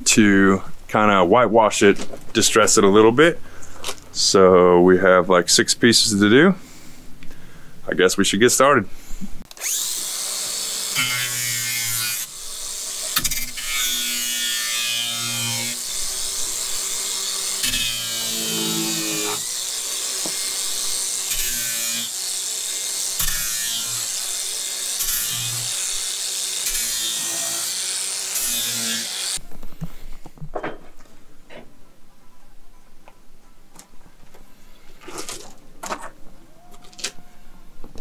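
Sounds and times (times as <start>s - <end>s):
angle grinder grinding wood: 9.5s - 29.4s.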